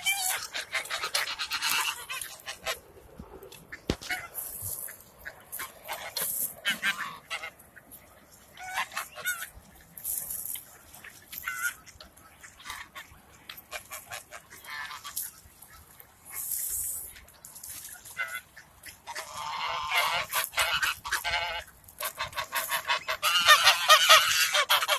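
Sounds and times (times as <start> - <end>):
geese honking: 0.0 - 2.8, 3.5 - 17.0, 17.8 - 24.9
rustling noise: 0.0 - 11.9, 12.6 - 19.0.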